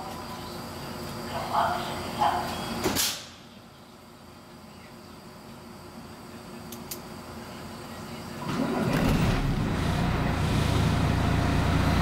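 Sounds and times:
bus diesel engine rumbling: 3.5 - 12.0.

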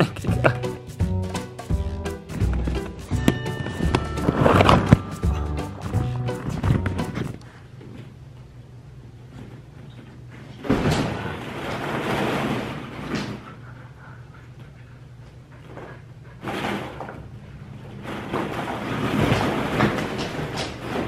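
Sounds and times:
plastic balls rustling and clattering: 10.6 - 13.4, 16.4 - 21.0.

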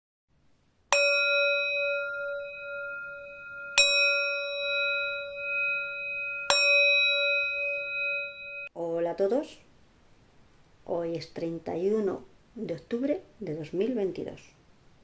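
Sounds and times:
bell ringing: 0.9 - 8.7.

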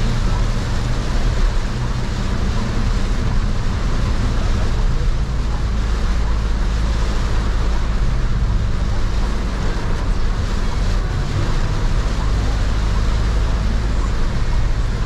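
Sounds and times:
heavy rain on vehicle: 0.0 - 15.0
low engine and road rumble: 0.0 - 15.0
tyres hissing on wet road: 0.0 - 15.0.

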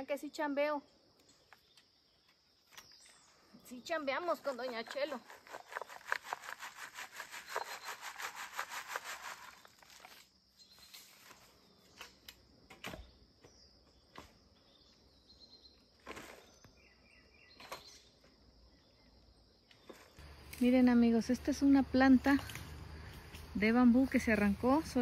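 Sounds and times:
soil rasping through a sieve: 4.5 - 10.2.

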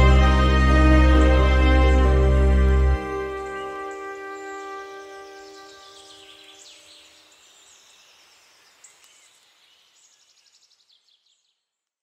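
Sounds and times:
held music chord: 0.0 - 6.6
birds chirping and trilling: 0.0 - 11.6.

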